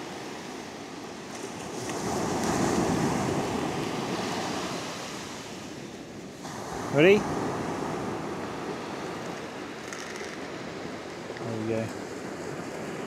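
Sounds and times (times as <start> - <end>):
sea surf breaking on beach: 0.0 - 13.0.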